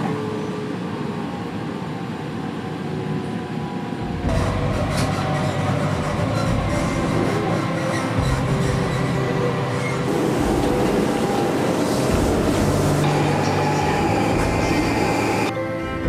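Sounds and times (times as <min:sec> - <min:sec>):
train running noise: 0:00.0 - 0:16.0
train clicks: 0:04.3 - 0:15.5.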